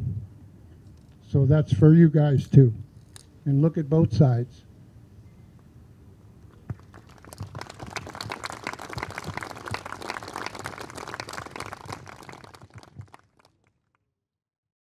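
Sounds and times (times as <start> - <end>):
audience applauding: 6.7 - 13.7.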